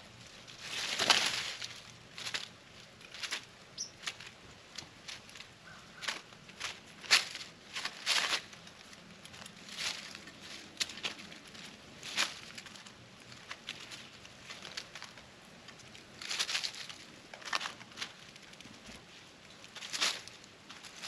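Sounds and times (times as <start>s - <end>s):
animals feeding clicks and rustles: 0.1s - 21.0s.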